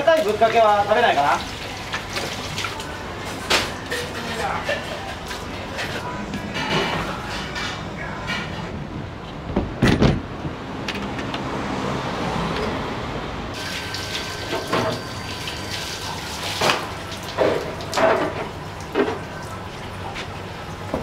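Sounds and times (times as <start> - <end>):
water running from a hose: 0.0 - 3.0, 13.6 - 20.8.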